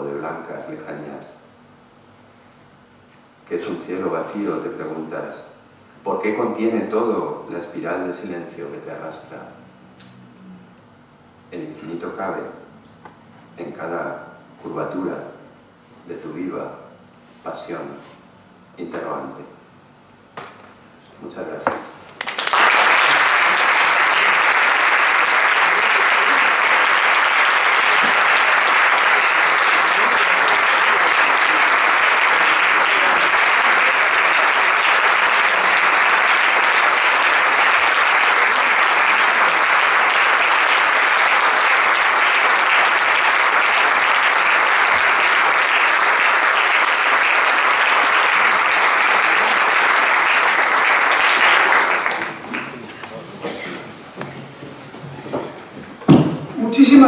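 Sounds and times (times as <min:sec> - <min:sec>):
audience applauding: 0:22.2 - 0:52.9.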